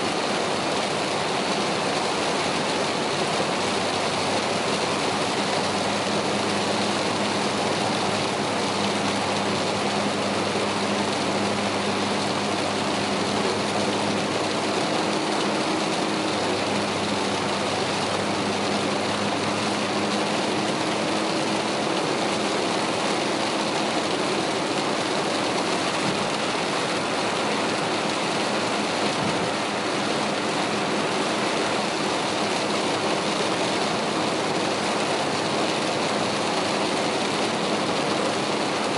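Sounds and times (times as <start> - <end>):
low engine hum: 0.0 - 38.9
rain and tyres on wet road: 0.0 - 38.9.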